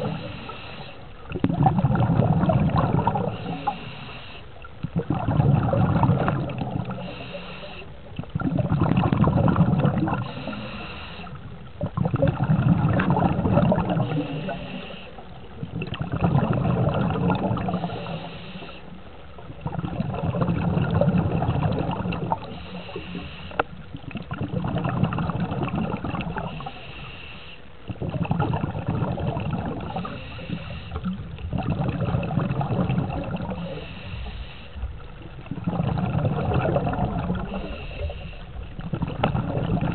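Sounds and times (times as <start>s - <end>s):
gurgling exhaust bubbles: 0.0s - 0.6s, 1.2s - 4.0s, 4.6s - 26.9s, 27.8s - 39.9s
regulator inhale hiss: 0.0s - 1.3s, 3.2s - 4.7s, 6.7s - 8.0s, 10.0s - 11.6s, 13.8s - 15.5s, 17.6s - 19.2s, 22.3s - 23.8s, 26.3s - 27.9s, 29.8s - 31.4s, 33.4s - 35.1s, 37.4s - 38.8s.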